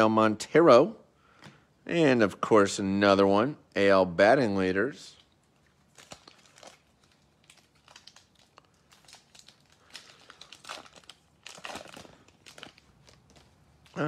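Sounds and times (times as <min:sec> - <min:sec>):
paper wrapper crinkling and tearing: 0:05.1 - 0:14.0.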